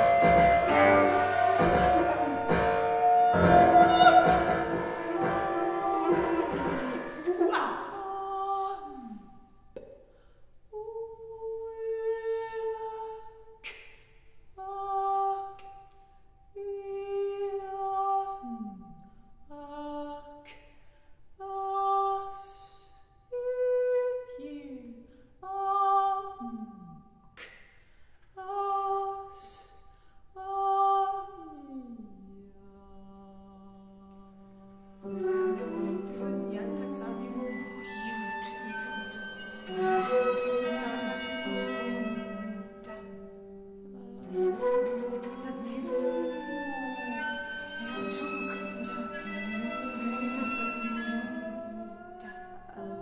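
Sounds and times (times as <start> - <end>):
woman humming and singing: 0.0 - 9.6, 16.6 - 20.6, 21.4 - 27.1, 30.4 - 53.0.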